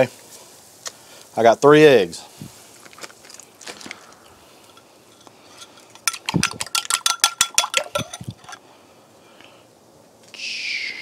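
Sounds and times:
utensil clinking against bowl: 0:04.7 - 0:08.6.

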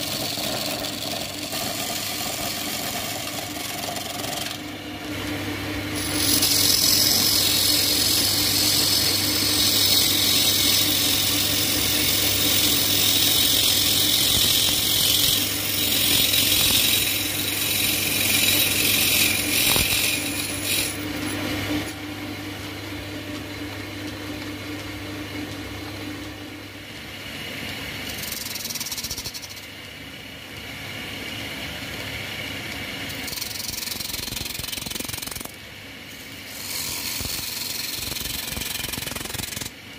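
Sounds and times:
chisel scraping wood on lathe: 0:00.0 - 0:04.7, 0:06.0 - 0:22.0, 0:36.5 - 0:39.7
lathe motor hum: 0:00.0 - 0:29.6.

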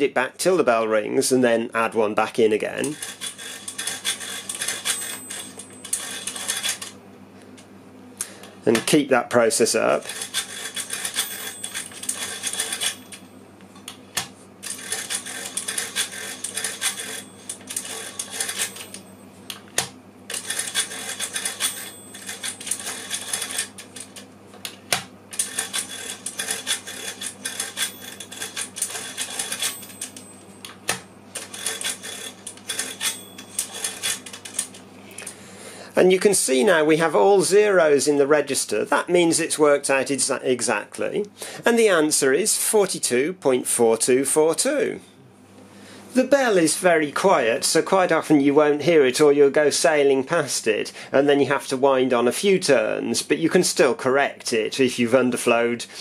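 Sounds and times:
mechanical calculator clicking: 0:02.8 - 0:06.9, 0:10.0 - 0:13.2, 0:14.6 - 0:19.0, 0:19.8 - 0:24.2, 0:25.3 - 0:30.8, 0:31.4 - 0:34.8.

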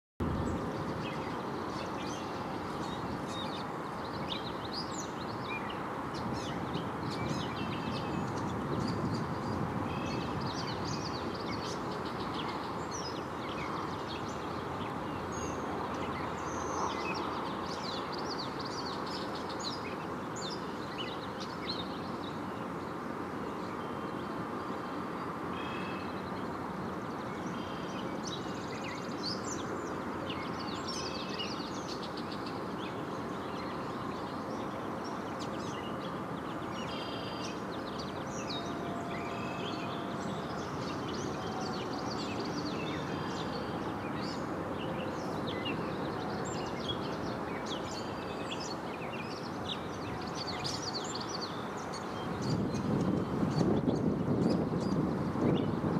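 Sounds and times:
low rushing background noise: 0:00.2 - 0:53.5
small birds chirping: 0:25.6 - 0:55.9.

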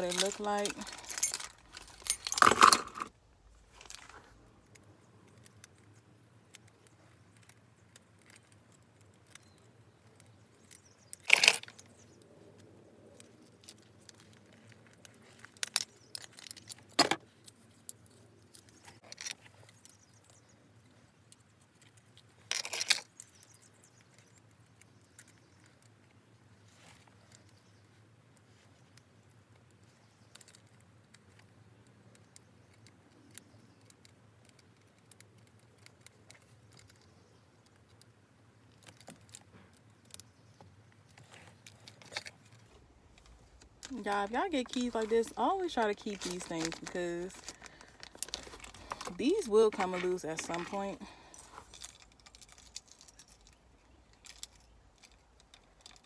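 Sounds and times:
keys jangling: 0:00.0 - 0:03.1, 0:44.8 - 0:56.0.

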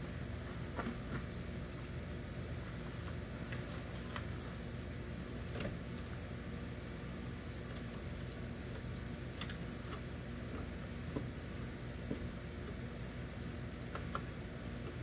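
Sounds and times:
low background hum: 0:00.0 - 0:15.0
light clicks and taps: 0:07.5 - 0:12.8, 0:13.7 - 0:15.0.

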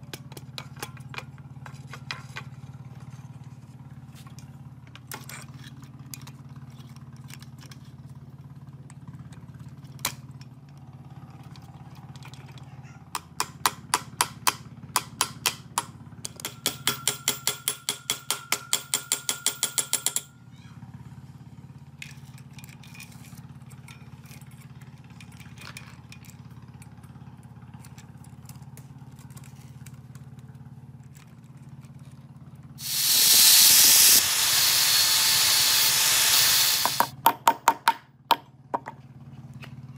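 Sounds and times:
hammer tapping on steel spanner: 0:13.1 - 0:20.3
angle grinder cutting chain: 0:32.8 - 0:37.2.

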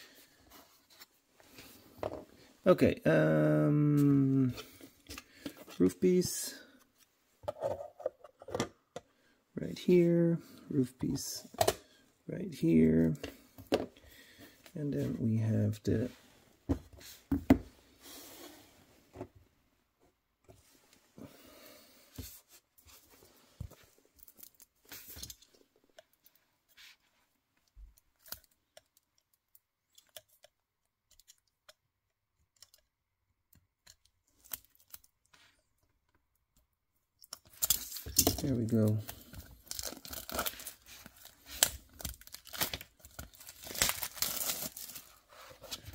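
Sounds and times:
film rustling: 0:37.4 - 0:45.9
knife scraping plastic film: 0:37.4 - 0:45.9.

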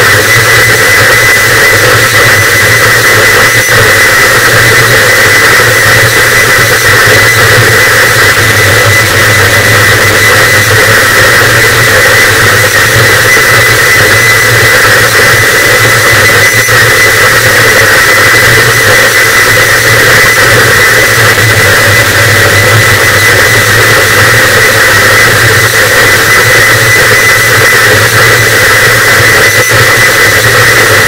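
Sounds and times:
distorted static noise wall: 0:00.0 - 0:31.0
thin steady high tone: 0:00.1 - 0:31.0
low hum: 0:06.1 - 0:13.2, 0:19.3 - 0:28.9.

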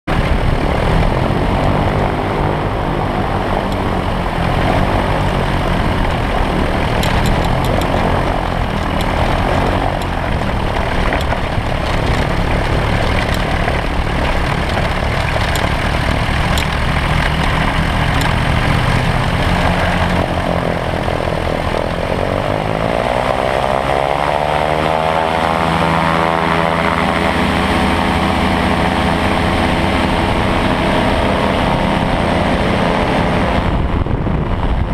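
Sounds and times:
propeller engine running: 0:00.0 - 0:34.9
knocks and rattles: 0:05.9 - 0:20.4.

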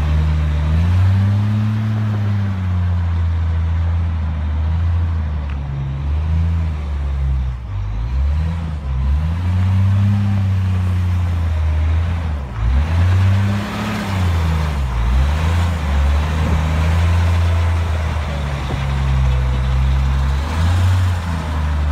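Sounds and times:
wheel loader engine revving: 0:00.0 - 0:21.9.

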